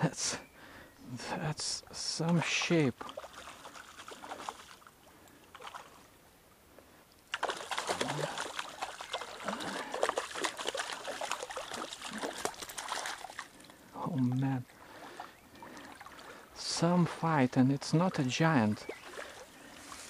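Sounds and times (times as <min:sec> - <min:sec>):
stream noise: 0:00.0 - 0:20.0
fish splashing in water: 0:03.0 - 0:04.9, 0:07.3 - 0:14.4.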